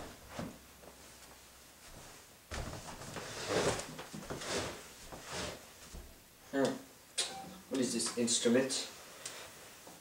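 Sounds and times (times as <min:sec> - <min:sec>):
rustling scrapes: 0:02.9 - 0:05.9.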